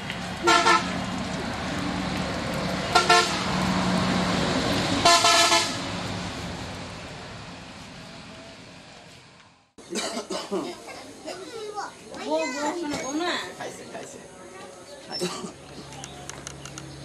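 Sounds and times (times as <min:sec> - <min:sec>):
rickshaw horn toots: 0:05.0 - 0:05.8.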